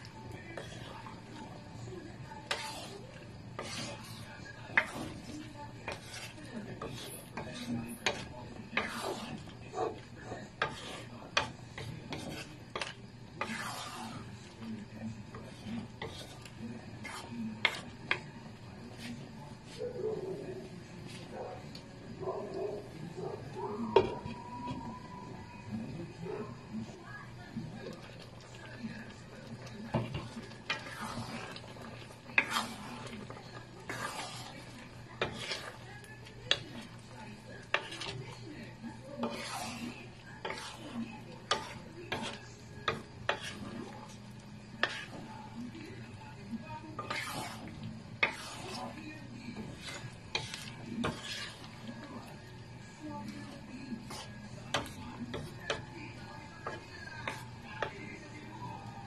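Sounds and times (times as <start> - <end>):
spatula stirring stew in pan: 0.0 - 59.0
utensil clicking against pan: 4.7 - 9.2, 10.4 - 13.8, 29.6 - 34.1, 37.7 - 38.2, 39.2 - 43.8, 46.9 - 48.9.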